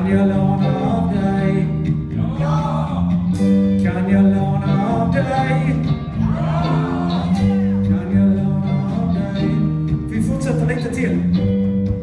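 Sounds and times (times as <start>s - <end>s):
person singing into a microphone: 0.0s - 3.1s, 3.8s - 10.4s
bass guitar: 0.0s - 12.0s
electric guitar: 0.0s - 12.0s.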